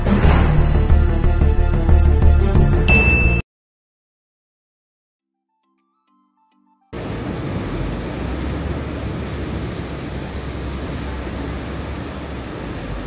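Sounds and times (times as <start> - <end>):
ocean surf breaking on shore: 7.0 - 13.0.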